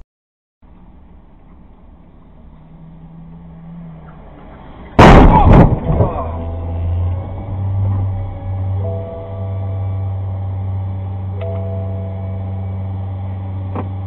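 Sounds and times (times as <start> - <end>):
loud car crash: 4.0 - 8.2
steady low hum with held tones: 5.0 - 14.0.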